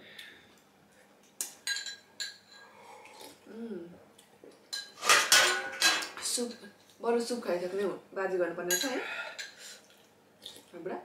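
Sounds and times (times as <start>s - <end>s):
metal spoon clinking ceramic bowl: 1.4s - 2.6s
person humming: 3.0s - 4.0s.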